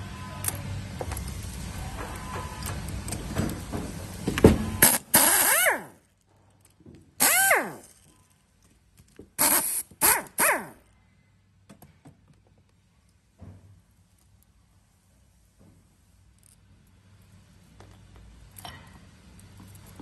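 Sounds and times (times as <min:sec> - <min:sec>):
power screwdriver motor whine: 0:04.8 - 0:06.0, 0:07.2 - 0:07.9.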